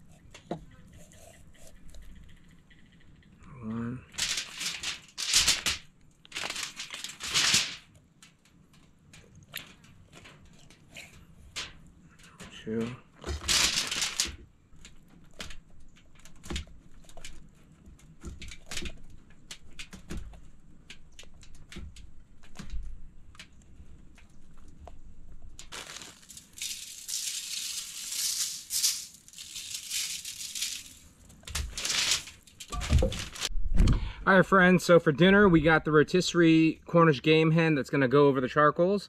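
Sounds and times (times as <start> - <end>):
hands clicking and rustling: 4.1 - 33.5.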